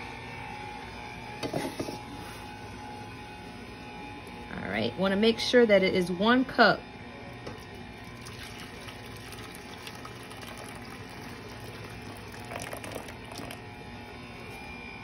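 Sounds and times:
water pouring into cup: 7.6 - 13.7.

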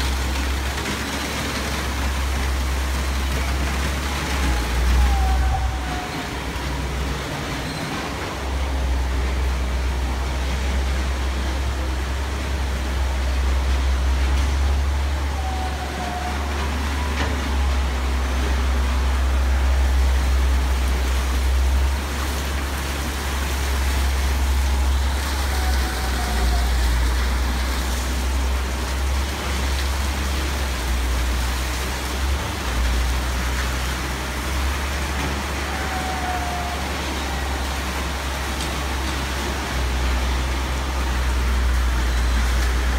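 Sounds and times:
machinery rumble and hiss: 0.0 - 42.9
faint short squeaks: 7.6 - 8.3.

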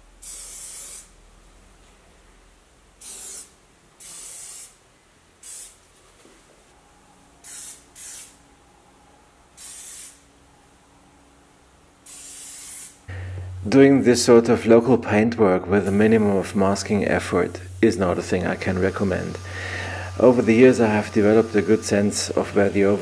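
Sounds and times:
spray paint can spraying: 0.2 - 1.1, 3.0 - 4.8, 5.4 - 5.8, 7.4 - 8.4, 9.6 - 10.2, 12.0 - 13.0.

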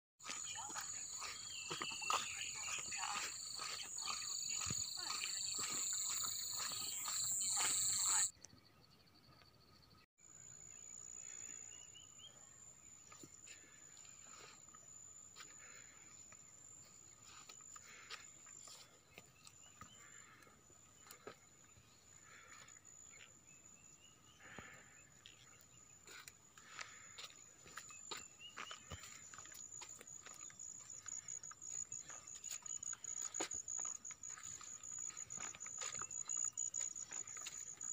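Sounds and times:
bird chirps: 0.2 - 9.4
high-pitched insect trill: 0.3 - 8.3, 29.3 - 37.9.

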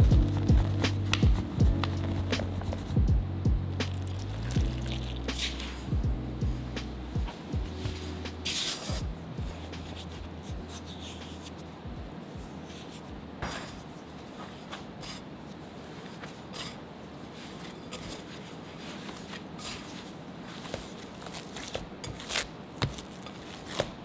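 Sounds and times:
low steady hum: 0.0 - 22.7
dough scraping against glass bowl: 16.2 - 20.7.

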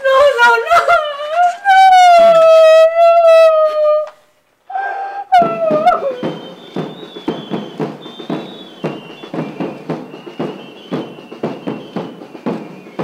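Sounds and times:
shrill piping flutes: 4.7 - 13.0
drum steady beat: 5.4 - 13.0.

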